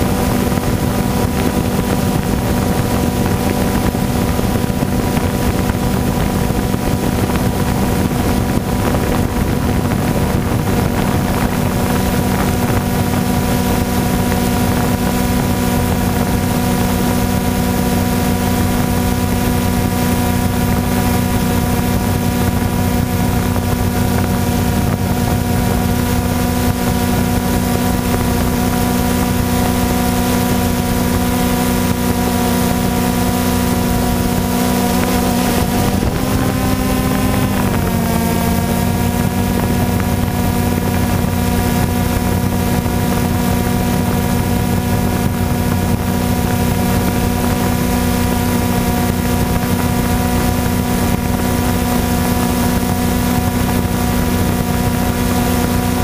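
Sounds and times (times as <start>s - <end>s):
drone motors humming: 0.0s - 56.0s.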